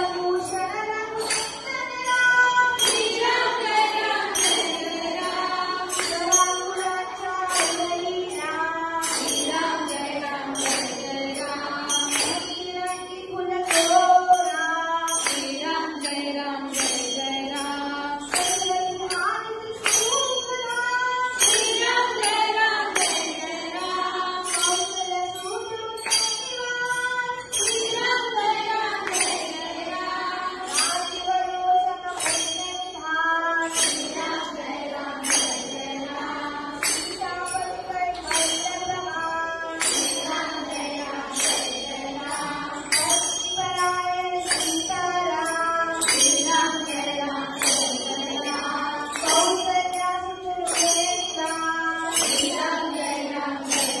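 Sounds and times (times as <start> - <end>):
jingling percussion beat: 0.0 - 54.0
person singing devotional song: 0.0 - 54.0.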